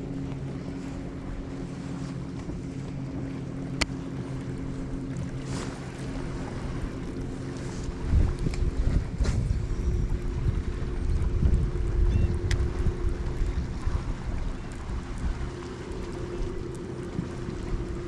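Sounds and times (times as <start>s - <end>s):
trolling motor electric hum: 0.0s - 18.0s
wind buffeting microphone: 0.0s - 18.0s.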